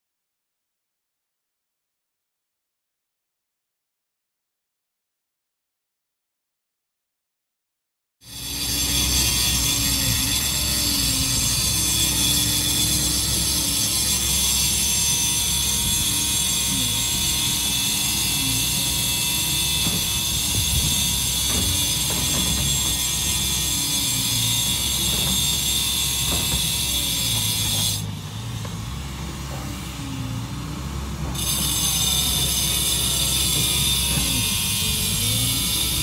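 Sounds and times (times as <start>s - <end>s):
track loader whine and rumble: 8.3s - 36.0s.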